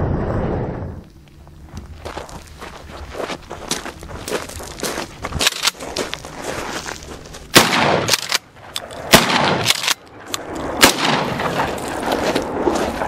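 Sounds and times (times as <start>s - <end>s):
shotgun blasts: 7.5s - 11.8s.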